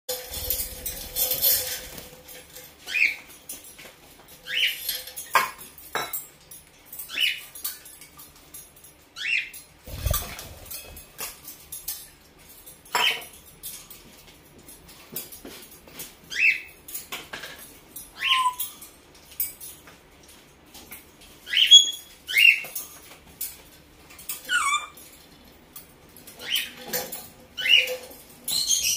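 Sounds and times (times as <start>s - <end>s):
parrot squeaky calls: 18.2s - 18.7s, 21.5s - 22.6s, 24.5s - 25.0s.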